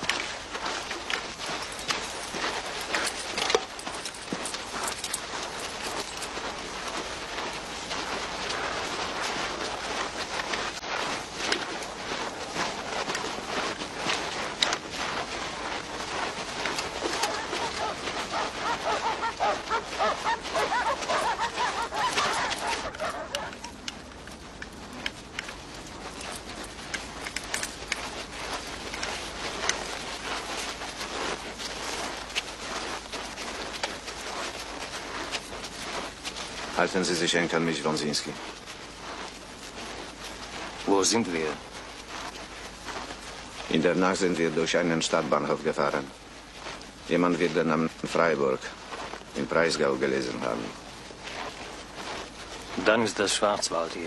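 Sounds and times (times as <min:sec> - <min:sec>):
crowd footsteps crunching snow: 0:00.0 - 0:54.0
dog barking: 0:17.0 - 0:23.8.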